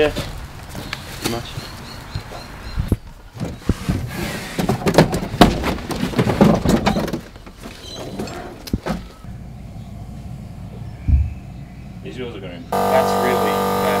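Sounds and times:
tyres thudding and rubbing: 0:03.4 - 0:09.2.

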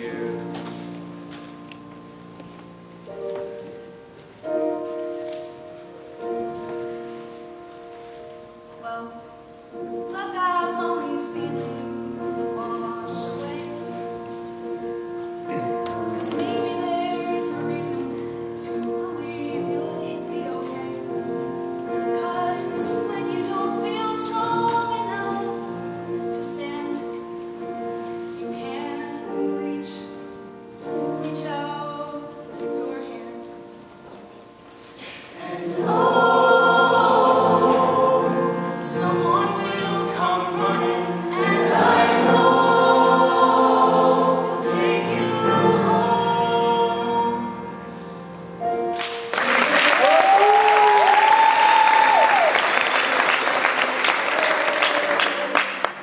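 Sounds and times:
grand piano accompaniment: 0:00.0 - 0:56.0
mixed choir singing: 0:35.3 - 0:47.8
applause: 0:49.0 - 0:56.0.

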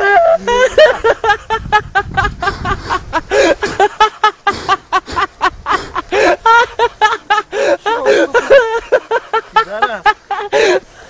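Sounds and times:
men talking excitedly: 0:09.5 - 0:10.2.

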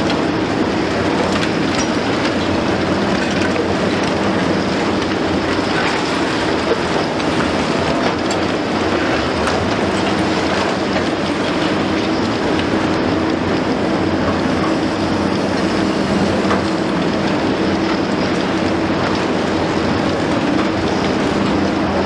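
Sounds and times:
excavator diesel engine running: 0:00.0 - 0:22.0
concrete rubble crackling and falling: 0:00.1 - 0:13.7.

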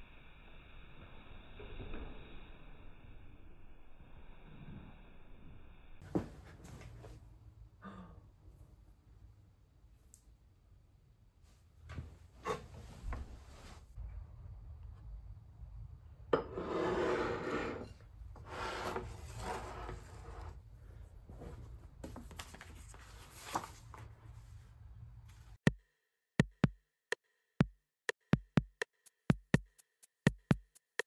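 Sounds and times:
book pages rustling: 0:21.3 - 0:24.7.

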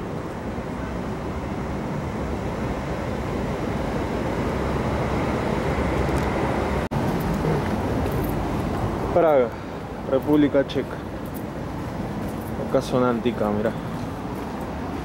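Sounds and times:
city street noise: 0:00.0 - 0:15.0.

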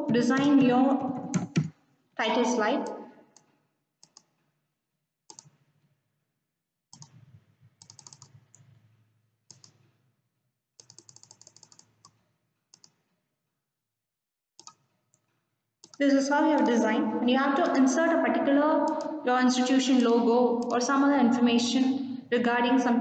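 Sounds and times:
keyboard key taps: 0:00.0 - 0:01.7
computer mouse clicks: 0:02.8 - 0:04.4, 0:05.3 - 0:05.6, 0:06.9 - 0:08.6, 0:09.5 - 0:09.9, 0:10.8 - 0:13.0, 0:14.6 - 0:16.8, 0:18.8 - 0:19.2.

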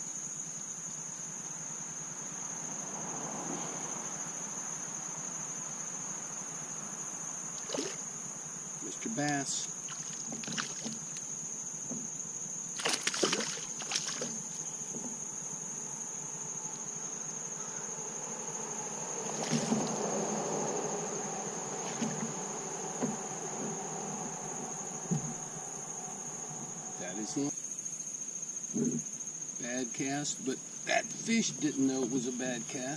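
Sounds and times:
high-pitched insect chorus: 0:00.0 - 0:32.9
water splashing: 0:07.6 - 0:08.2, 0:08.9 - 0:11.3, 0:12.7 - 0:14.6, 0:19.2 - 0:27.4
knocks against a kayak: 0:11.8 - 0:12.2, 0:19.4 - 0:20.1, 0:21.8 - 0:25.5.

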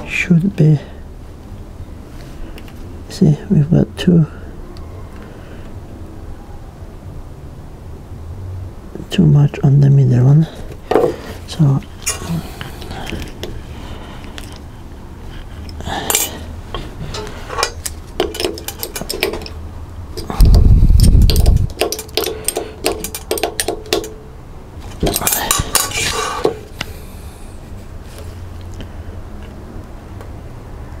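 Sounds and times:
allen key clicking on metal: 0:15.7 - 0:24.3, 0:25.0 - 0:26.9.

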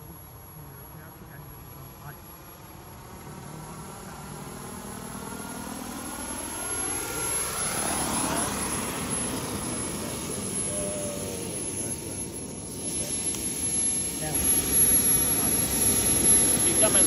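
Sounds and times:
helicopter rotor noise: 0:00.0 - 0:17.0
rc helicopter turbine whine: 0:00.0 - 0:17.0.

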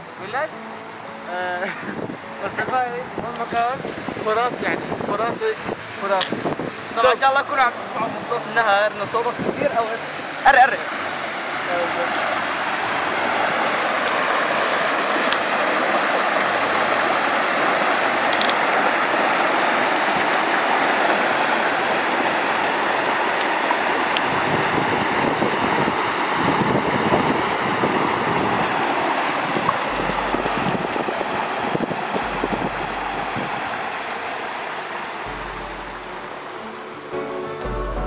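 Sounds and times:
water rushing over rocks: 0:00.0 - 0:37.2
deep uneven rumble: 0:29.6 - 0:34.0.

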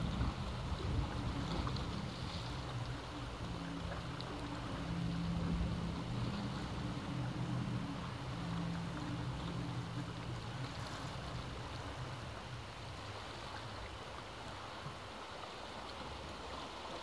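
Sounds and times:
low motor drone: 0:00.0 - 0:12.8
sea waves washing: 0:00.0 - 0:17.0.

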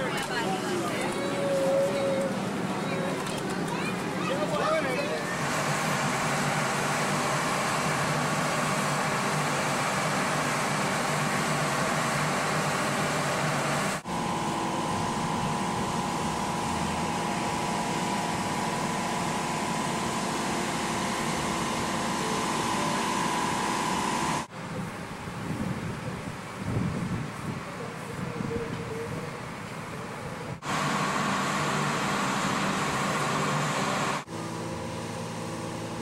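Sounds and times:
machinery humming: 0:00.0 - 0:25.4.

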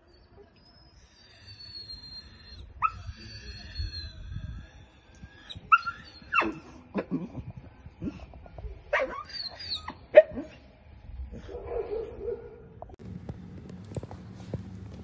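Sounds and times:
dog whining: 0:01.0 - 0:06.7, 0:09.0 - 0:10.6
dog yelping: 0:01.5 - 0:04.3, 0:05.4 - 0:06.7, 0:08.9 - 0:10.6.

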